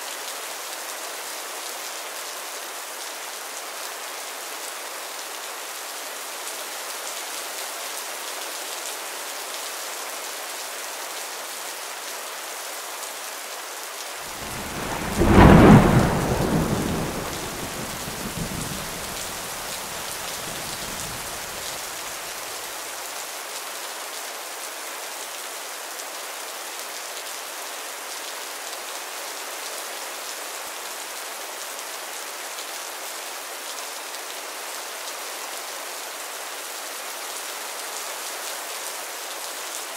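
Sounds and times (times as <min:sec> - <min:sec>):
steady rain: 0:00.0 - 0:39.9
thunder rumbling: 0:14.4 - 0:21.7.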